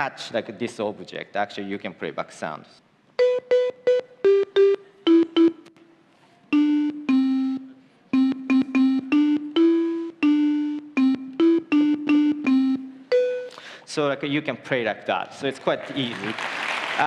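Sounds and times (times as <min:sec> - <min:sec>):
synthesizer notes: 0:03.2 - 0:05.8, 0:06.5 - 0:13.6.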